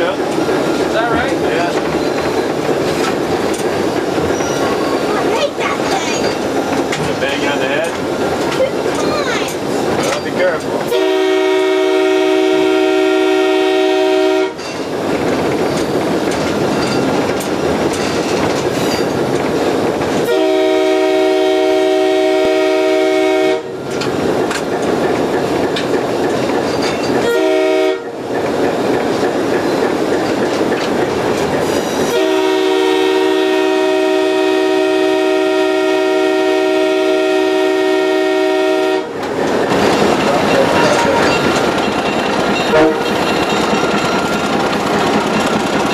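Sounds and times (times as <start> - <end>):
train running noise: 0.0 - 45.9
locomotive air horn: 10.9 - 14.6, 20.2 - 23.8, 27.2 - 28.2, 32.1 - 39.2, 42.7 - 43.2.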